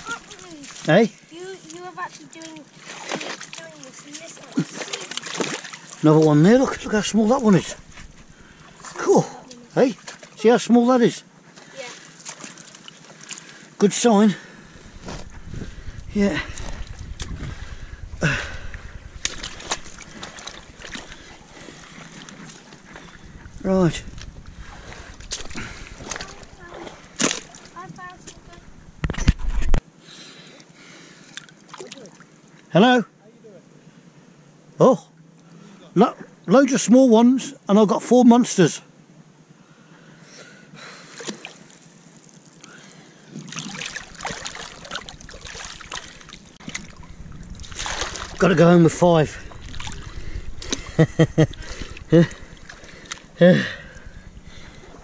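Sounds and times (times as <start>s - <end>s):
water sloshing: 0.0s - 10.4s, 11.3s - 13.8s, 14.4s - 29.8s, 31.1s - 32.6s, 41.0s - 55.0s
short grunt: 53.4s - 54.1s.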